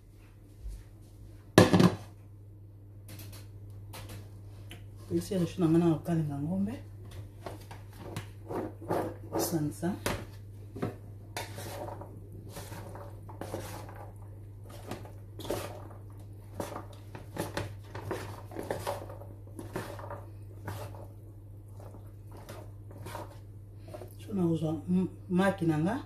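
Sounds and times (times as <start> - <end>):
wooden spoon scraping bowl: 7.1 - 24.4.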